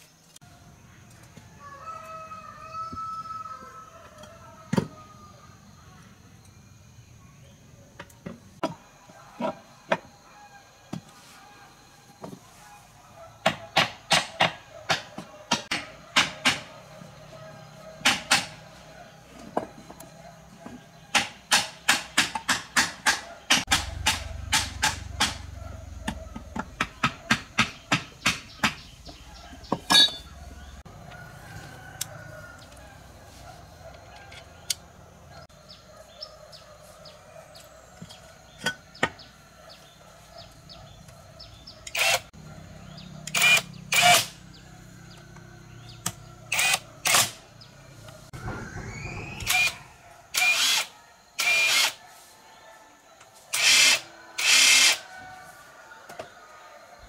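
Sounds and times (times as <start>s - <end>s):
hammer striking metal: 21.1s - 28.8s.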